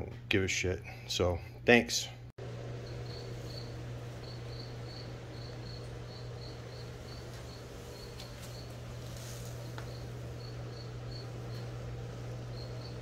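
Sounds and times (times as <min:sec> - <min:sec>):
steady low hum: 0:00.0 - 0:13.0
cricket chirping: 0:02.6 - 0:13.0.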